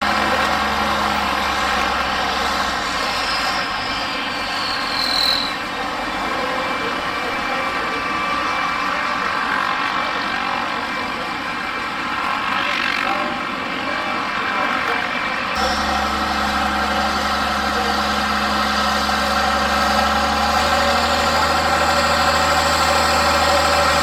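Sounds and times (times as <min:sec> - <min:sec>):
tractor diesel engine under load: 0:00.0 - 0:04.9, 0:15.6 - 0:24.0
high whistle gliding down: 0:02.8 - 0:05.9.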